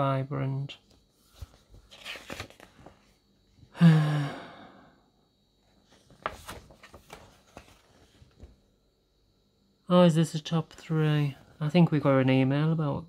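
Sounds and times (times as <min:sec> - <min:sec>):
paper pages flipping: 0:00.9 - 0:03.2, 0:05.8 - 0:08.6
man sighing: 0:03.7 - 0:05.0.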